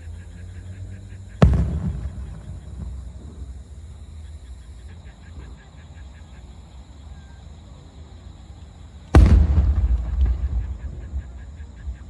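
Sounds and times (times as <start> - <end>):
firework boom with rumble: 1.4 - 3.5, 9.2 - 11.4.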